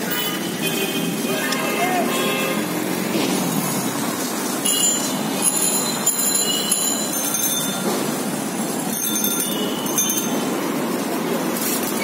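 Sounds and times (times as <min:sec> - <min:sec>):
street traffic din: 0:00.0 - 0:12.0
rattling rickshaws: 0:01.0 - 0:12.0
rickshaw bells ringing: 0:04.6 - 0:10.7.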